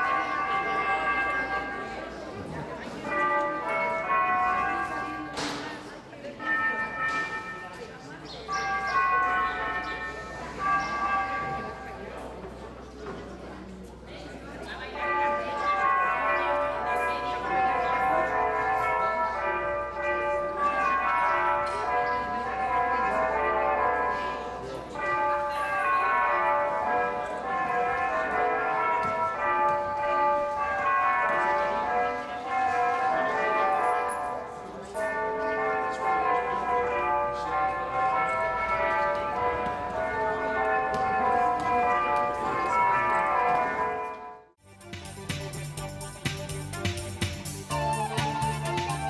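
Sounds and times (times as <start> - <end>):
carillon bells playing a tune: 44.7 - 49.0.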